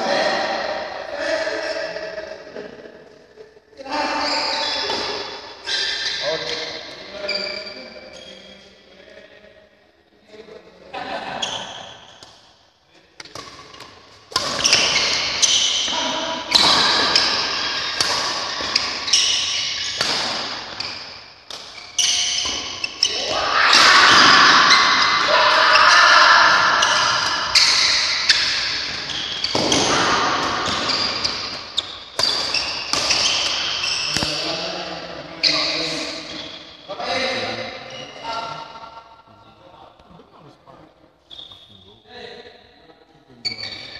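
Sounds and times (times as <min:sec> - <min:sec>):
voices: 0:00.0 - 0:03.0, 0:14.4 - 0:20.8, 0:22.0 - 0:31.5, 0:32.2 - 0:43.9
racket striking shuttlecock: 0:13.2 - 0:15.8, 0:16.5 - 0:22.9, 0:29.4 - 0:34.3.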